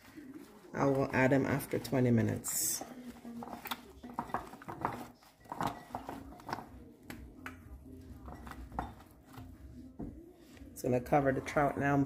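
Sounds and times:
slices tapping glass bowl: 2.8 - 9.4.

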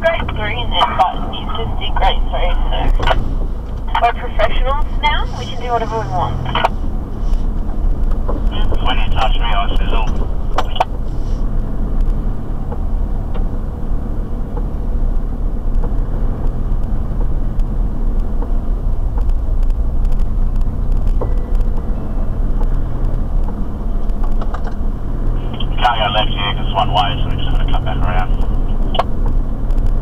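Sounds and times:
engine and tyre rumble: 0.0 - 30.0.

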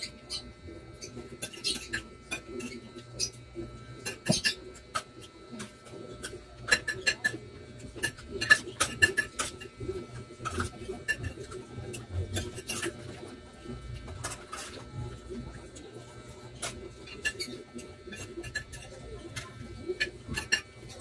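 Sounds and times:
spoon scraping on plate: 1.0 - 13.3, 16.6 - 21.0.

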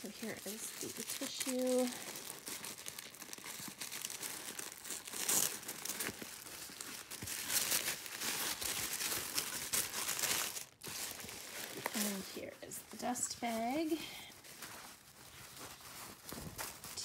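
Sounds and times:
tissue paper rustling and crinkling: 0.0 - 17.0.

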